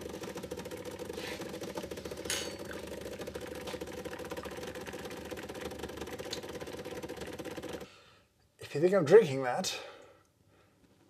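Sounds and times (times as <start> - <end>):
espresso machine pump buzzing: 0.0 - 7.9.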